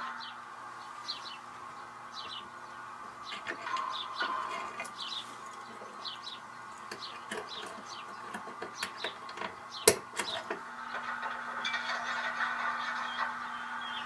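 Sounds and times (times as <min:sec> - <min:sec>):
faint steady hum: 0:00.0 - 0:14.0
falling bird-like chirps: 0:12.7 - 0:14.0.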